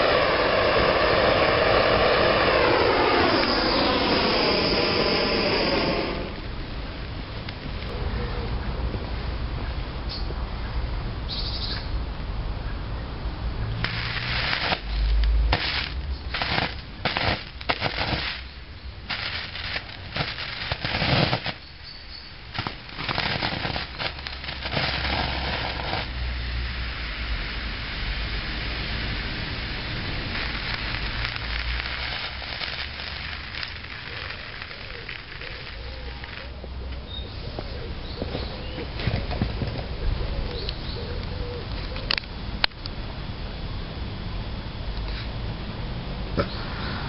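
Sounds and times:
burning magnesium crackling and spitting: 0.0 - 6.7, 13.7 - 36.8
steady hiss: 0.0 - 7.9, 13.2 - 47.0.

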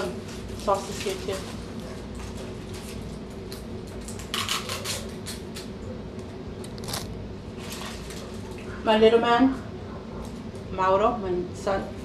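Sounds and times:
crinkly plastic rustle: 0.2 - 5.3, 6.7 - 8.7.

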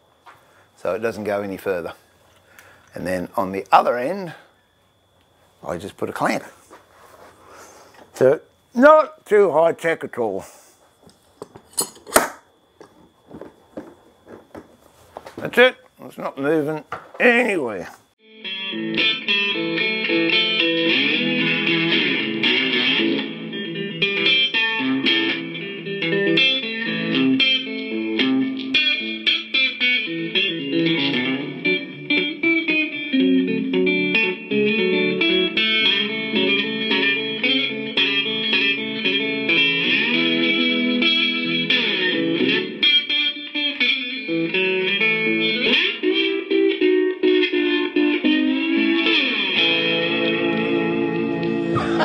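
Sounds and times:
instrumental music with sliding notes: 18.2 - 52.0.

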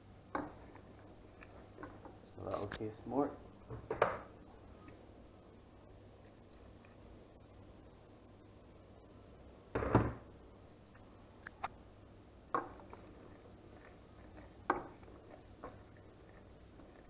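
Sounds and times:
wooden spoon stirring vegetables: 12.5 - 17.0.

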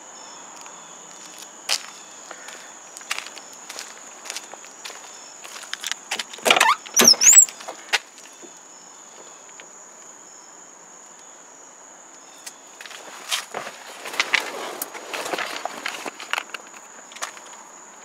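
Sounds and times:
car door squeaking open: 6.4 - 7.9.

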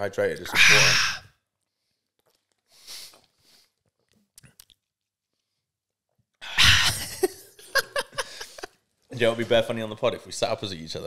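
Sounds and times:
man laughing loudly: 6.6 - 8.7.

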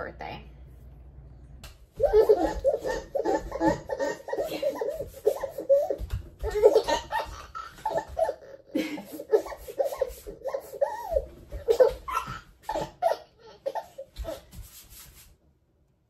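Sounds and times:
baby laughing: 2.0 - 14.5.

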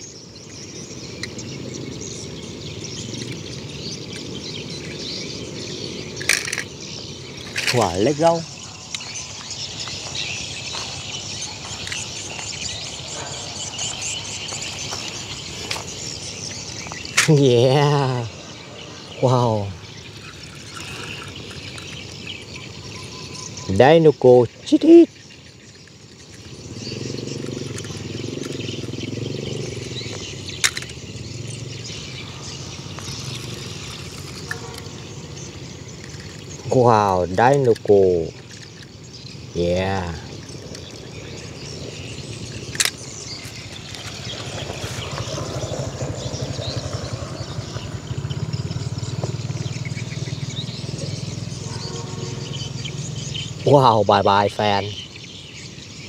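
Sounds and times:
birds chirping: 0.0 - 56.0
low wavering hum: 40.4 - 53.7.

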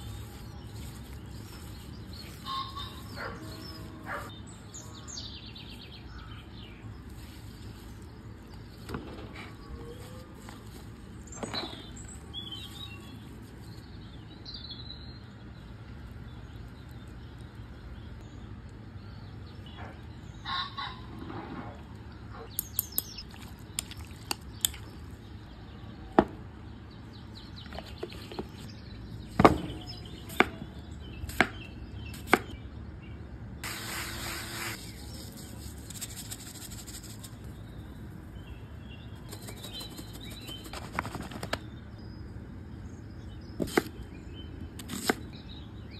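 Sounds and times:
hands mixing wet meat: 0.0 - 4.2
rustling: 0.0 - 4.3
birds chirping faintly: 0.0 - 45.9.

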